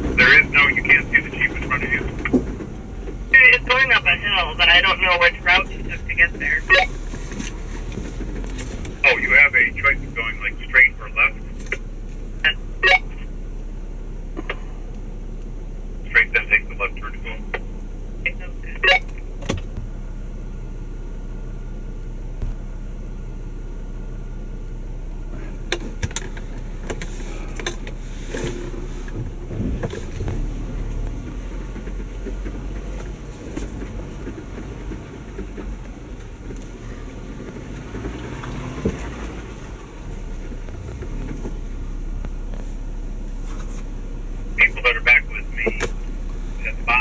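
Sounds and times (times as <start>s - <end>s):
vehicle engine and drivetrain hum: 0.0s - 47.0s
knocks and clicks: 2.0s - 3.3s.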